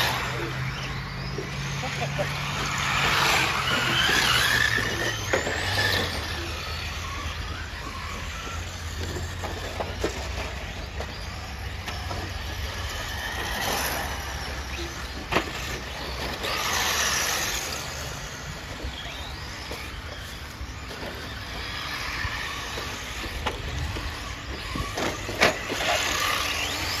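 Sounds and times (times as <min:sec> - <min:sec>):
rc car motor whine: 0:00.0 - 0:27.0.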